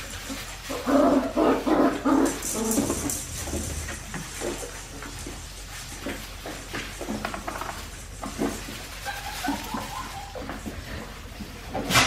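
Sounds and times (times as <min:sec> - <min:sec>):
puppy yapping: 0:09.0 - 0:10.7.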